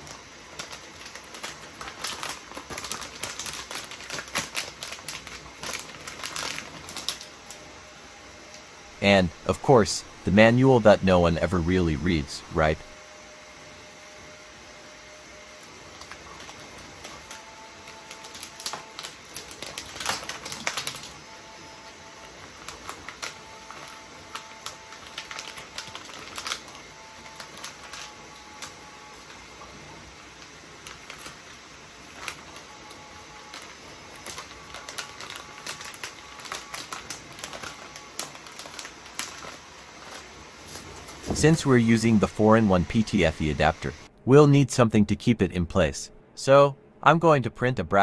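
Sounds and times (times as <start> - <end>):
paper and plastic bag rustling: 0.0 - 7.6, 15.9 - 43.2.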